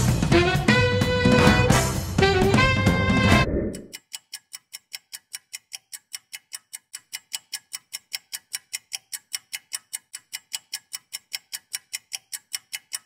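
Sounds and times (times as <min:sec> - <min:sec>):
background music: 0:00.0 - 0:03.9
clock ticking fast: 0:01.4 - 0:13.0.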